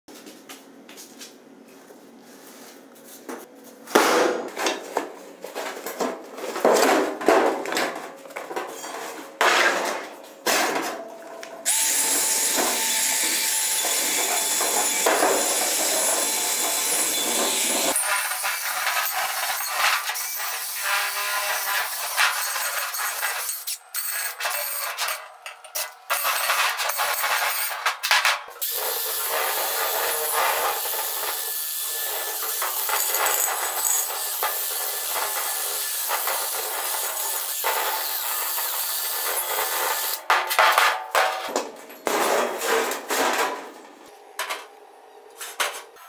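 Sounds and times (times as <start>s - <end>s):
cordless drill boring into steel: 11.7s - 18.0s, 28.6s - 40.2s.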